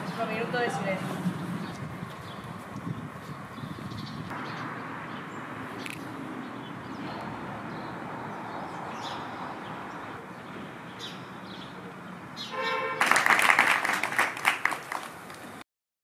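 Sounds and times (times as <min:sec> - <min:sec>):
crowd applause: 0:13.0 - 0:15.4.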